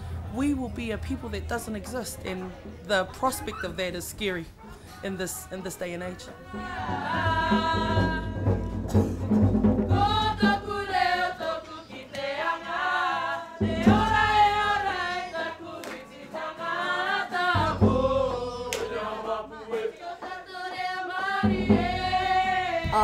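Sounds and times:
group of voices singing: 0:05.1 - 0:23.0.

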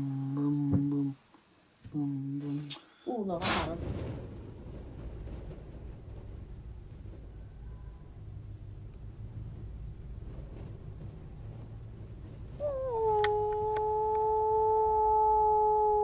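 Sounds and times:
crickets trilling: 0:00.0 - 0:16.0
low outdoor rumble: 0:00.0 - 0:16.0
man howling like a wolf: 0:12.6 - 0:16.0.

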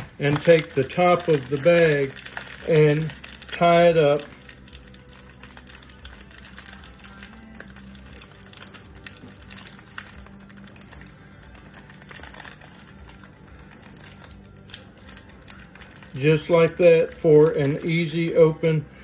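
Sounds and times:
plastic bag crinkling: 0:00.0 - 0:18.7.

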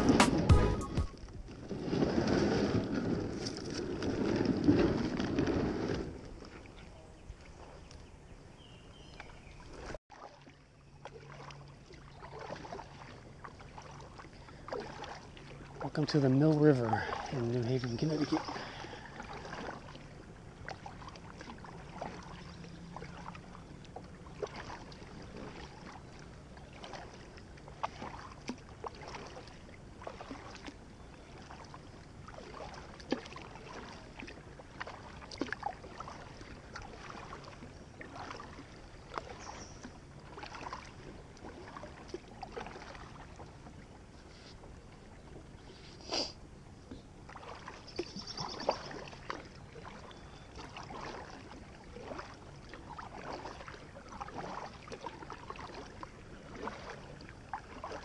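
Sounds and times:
paddle dipping into water: 0:00.0 - 0:58.0
small splashes and drips: 0:09.2 - 0:44.5, 0:46.9 - 0:58.0.

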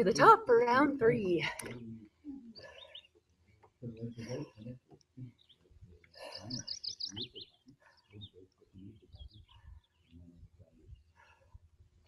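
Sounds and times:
songbird chirping: 0:00.0 - 0:11.2.

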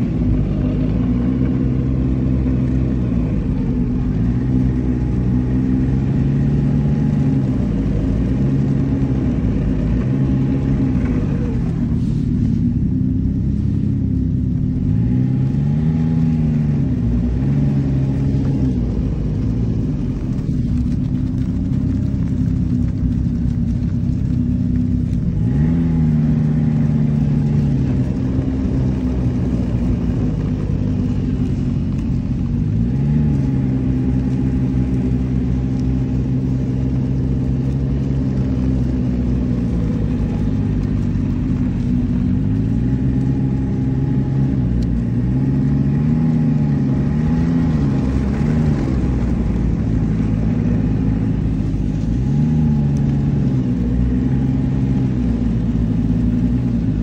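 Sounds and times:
snowmobile engine revving: 0:32.4 - 0:57.0.

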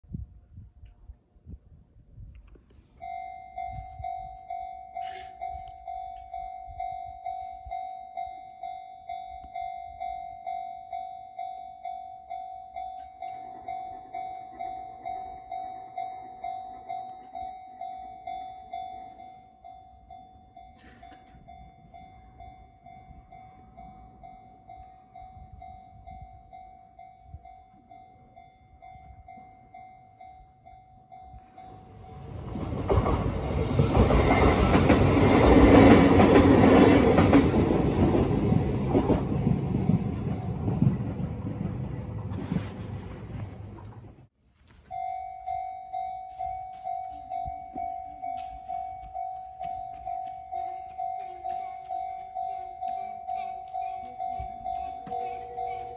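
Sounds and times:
level crossing bell dinging: 0:03.0 - 0:32.3, 0:44.8 - 0:55.9
train rumbling over rails: 0:13.2 - 0:44.3, 0:47.0 - 0:55.9.

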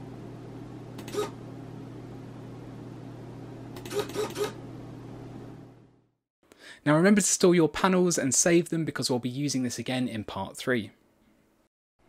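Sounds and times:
low electrical hum: 0:00.0 - 0:06.2.

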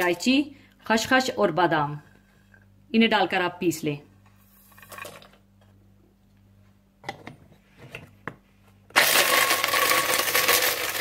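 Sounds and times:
electric coffee grinder running: 0:09.0 - 0:11.0.

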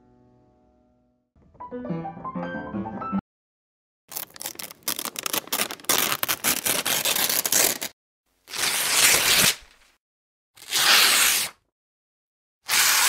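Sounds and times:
paper crumpling and tearing: 0:04.1 - 0:10.0, 0:10.6 - 0:11.6, 0:12.7 - 0:13.0.

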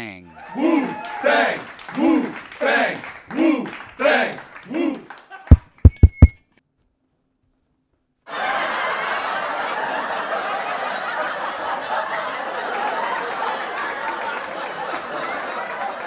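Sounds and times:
audience laughing: 0:08.3 - 0:16.0.

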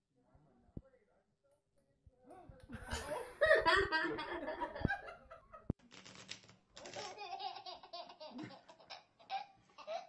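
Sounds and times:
baby laughing: 0:06.8 - 0:10.0.

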